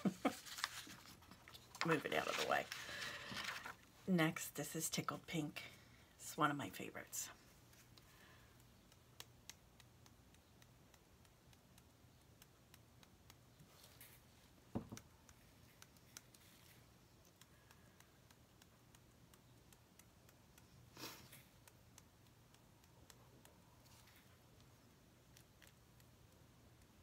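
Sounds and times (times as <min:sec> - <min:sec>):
paper rustle: 0:00.1 - 0:03.8
light handling ticks: 0:07.6 - 0:27.0
soft knock: 0:14.7 - 0:15.0.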